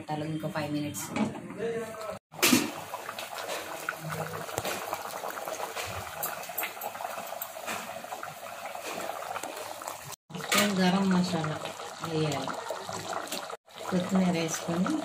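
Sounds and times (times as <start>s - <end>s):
curry boiling in a pot: 2.3s - 15.0s.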